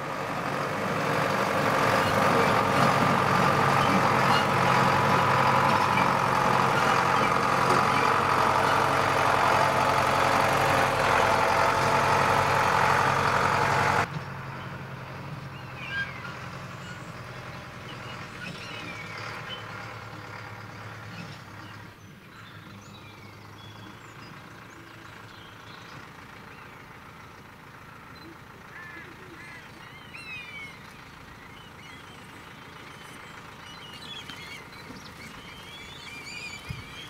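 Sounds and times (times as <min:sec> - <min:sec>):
faint engine hum: 0:00.0 - 0:37.0
tractor engine running: 0:00.0 - 0:37.0
high bird calls: 0:28.1 - 0:37.0.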